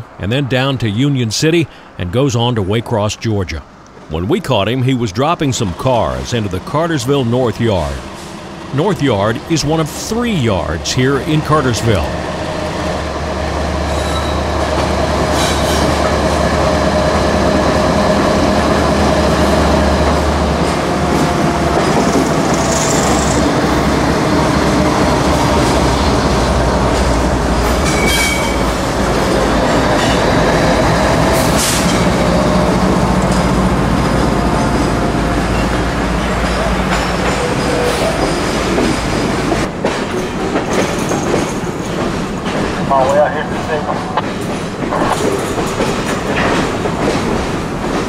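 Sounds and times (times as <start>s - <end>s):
diesel locomotives running: 0.0s - 48.0s
wheels squealing on rail: 13.6s - 18.0s, 21.2s - 24.0s, 27.6s - 32.6s, 34.6s - 42.9s.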